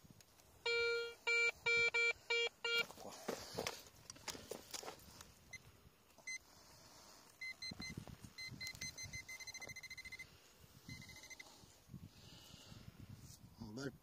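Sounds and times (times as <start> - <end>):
pinpointer probe beeping: 0.6 - 2.9, 5.5 - 6.4, 7.4 - 10.3, 10.9 - 11.5.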